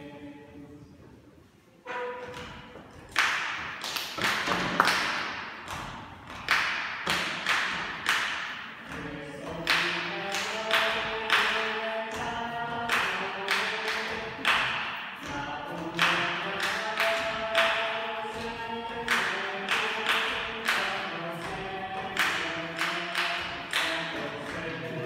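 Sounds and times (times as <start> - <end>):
voices singing in harmony: 0.0 - 0.9, 8.8 - 25.0
hand claps and slaps: 2.4 - 25.0.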